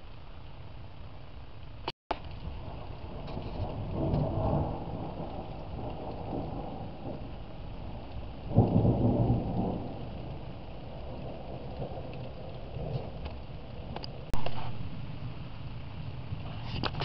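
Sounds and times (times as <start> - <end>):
steady rain: 0.0 - 17.0
thunder clap: 2.1 - 14.6
thunder rumbling: 2.1 - 16.6.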